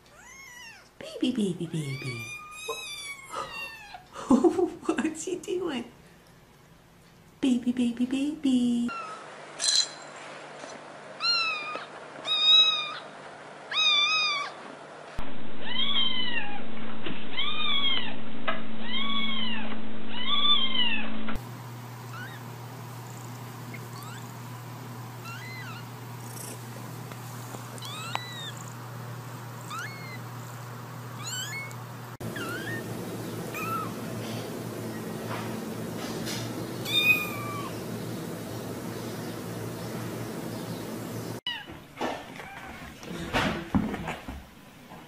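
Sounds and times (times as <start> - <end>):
kittens mewing: 1.7 - 4.1, 11.2 - 13.1, 13.7 - 14.6, 22.0 - 22.6, 23.7 - 24.4, 25.2 - 26.8, 27.6 - 28.9, 29.5 - 30.5, 31.1 - 34.0, 36.8 - 37.8
steady hum: 21.1 - 41.4.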